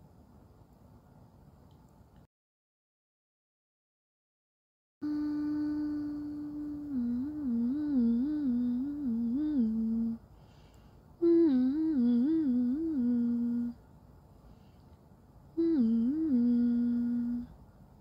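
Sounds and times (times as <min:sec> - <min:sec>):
woman humming a tune: 0:05.0 - 0:10.2, 0:11.2 - 0:13.8, 0:15.6 - 0:17.6.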